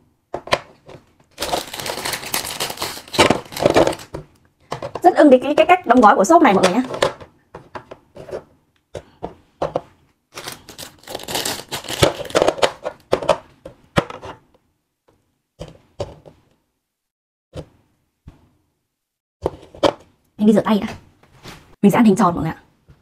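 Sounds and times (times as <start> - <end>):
plastic wrapping crinkling and tearing: 1.3 - 4.1, 10.3 - 12.8.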